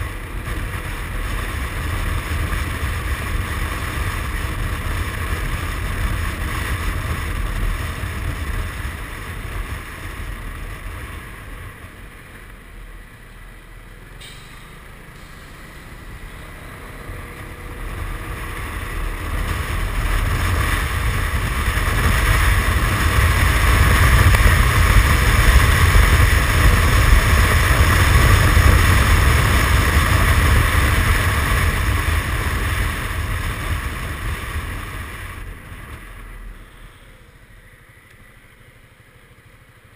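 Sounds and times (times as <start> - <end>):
scooter engine and tyre noise: 0.0 - 39.9
wind rushing over microphone: 15.9 - 36.8.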